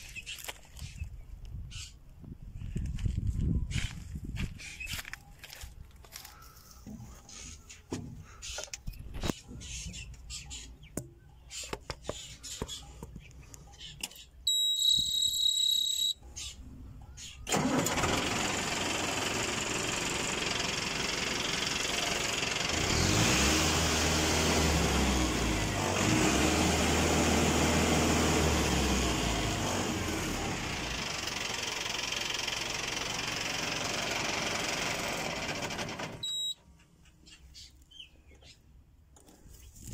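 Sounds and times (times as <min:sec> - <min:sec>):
tractor diesel engine running: 0:12.1 - 0:36.6.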